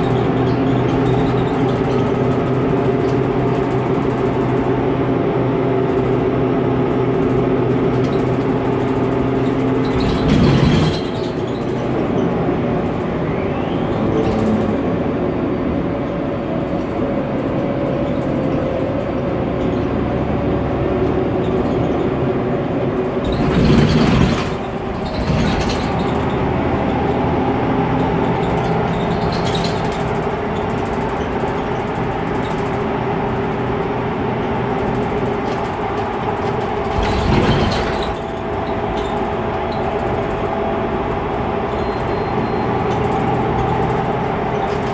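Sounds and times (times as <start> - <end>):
bus engine drone: 0.0 - 44.9
road noise: 0.0 - 44.9.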